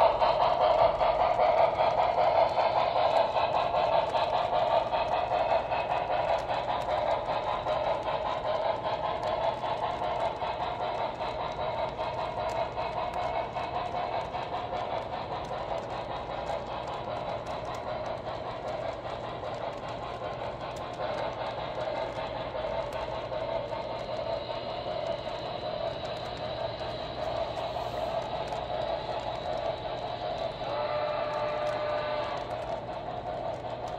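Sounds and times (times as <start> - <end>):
model train wheels whirring: 0.0 - 33.9.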